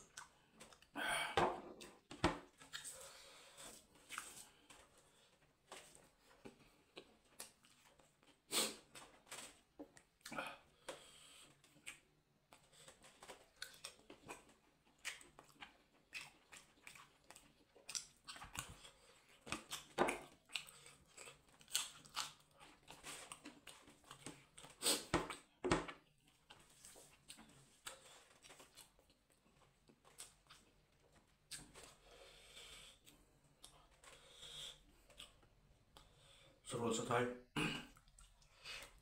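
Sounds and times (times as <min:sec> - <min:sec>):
chewing and biting: 0:01.8 - 0:05.0, 0:09.4 - 0:32.1, 0:32.8 - 0:36.2.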